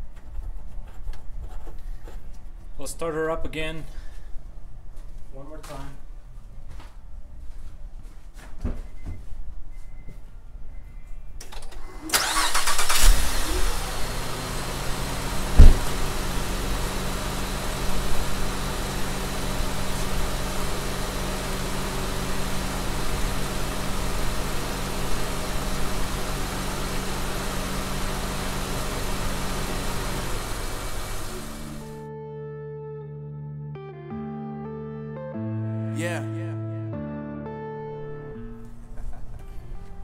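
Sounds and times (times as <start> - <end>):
engine starter cranking: 11.5 - 14.4
car engine idling: 12.1 - 32.0
loud thump: 15.4 - 16.2.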